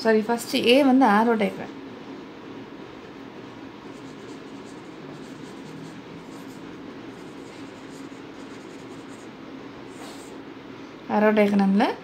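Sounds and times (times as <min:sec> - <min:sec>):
steady low hum: 0:00.0 - 0:12.0
marker pen scratching on paper: 0:03.8 - 0:10.4.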